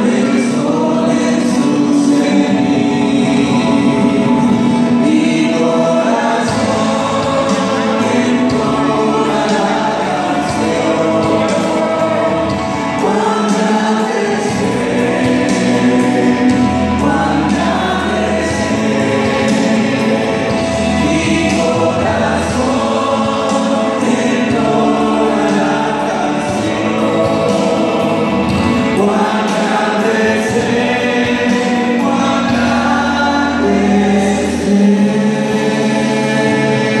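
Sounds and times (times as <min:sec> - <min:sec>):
group singing worship song: 0:00.0 - 0:37.0
low musical accompaniment: 0:00.0 - 0:37.0.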